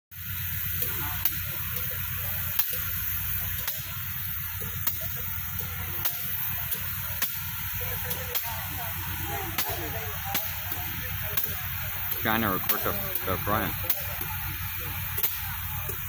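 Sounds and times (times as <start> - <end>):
steam locomotive hissing: 0.2 - 16.0.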